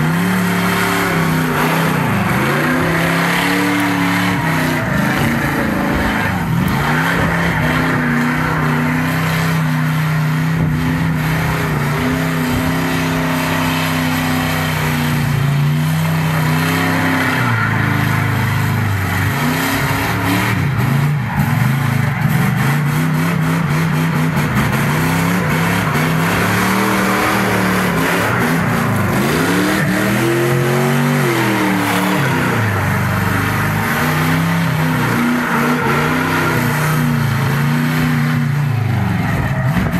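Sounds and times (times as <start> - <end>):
car engine revving: 0.0 - 39.9.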